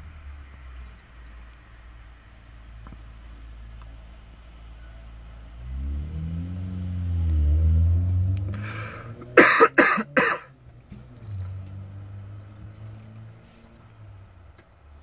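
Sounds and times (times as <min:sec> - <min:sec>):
person coughing: 0:09.2 - 0:10.5.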